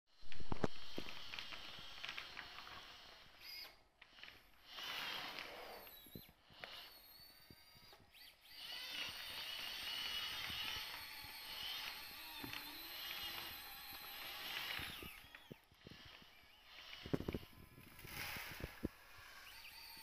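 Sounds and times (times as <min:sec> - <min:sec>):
electric motors whining: 0:00.2 - 0:20.0.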